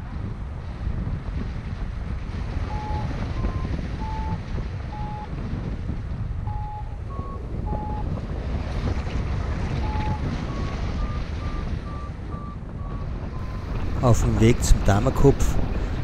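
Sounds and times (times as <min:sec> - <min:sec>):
wind rushing over microphone: 0:00.0 - 0:16.0
variometer short beeps: 0:02.7 - 0:05.3, 0:06.5 - 0:08.1, 0:09.8 - 0:13.6.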